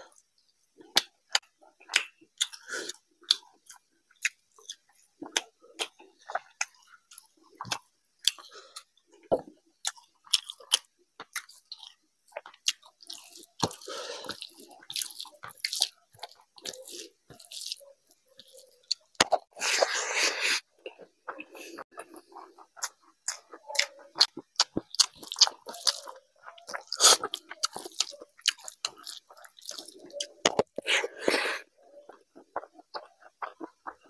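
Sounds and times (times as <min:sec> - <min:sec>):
wet chewing and lip-smacking: 0:00.0 - 0:20.0, 0:20.8 - 0:34.0
fingers squelching food: 0:09.9 - 0:19.5, 0:21.3 - 0:34.0.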